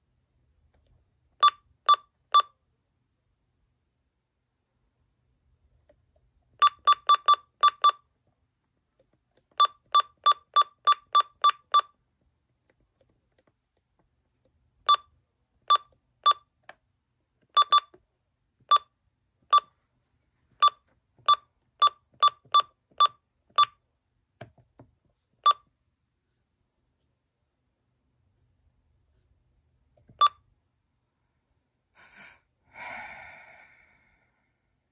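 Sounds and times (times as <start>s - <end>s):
short high keypad beeps: 17.6s - 17.9s.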